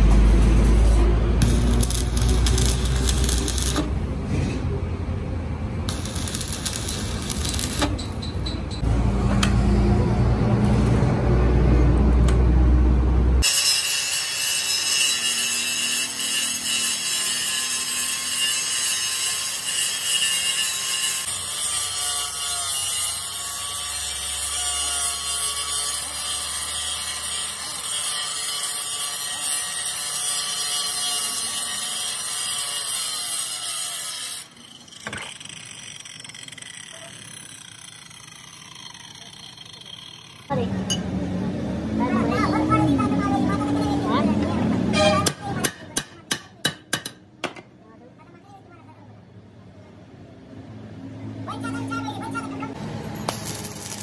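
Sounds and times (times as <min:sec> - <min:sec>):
angle grinder grinding steel: 0:00.4 - 0:04.6, 0:05.9 - 0:08.8, 0:13.4 - 0:41.0
grinder winding down whine: 0:34.7 - 0:40.6.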